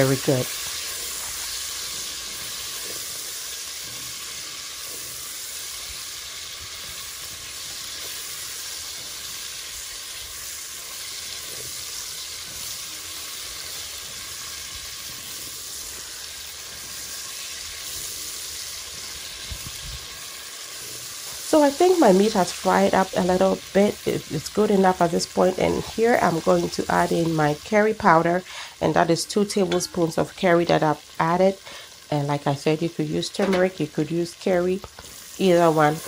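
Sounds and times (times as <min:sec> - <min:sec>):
meat sizzling in fat: 0:00.0 - 0:36.0
spatula stirring: 0:00.4 - 0:22.8.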